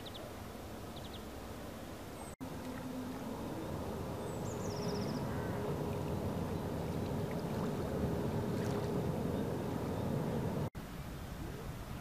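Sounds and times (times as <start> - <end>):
faint steady hum: 0.0 - 12.0
small waves lapping: 2.2 - 10.7.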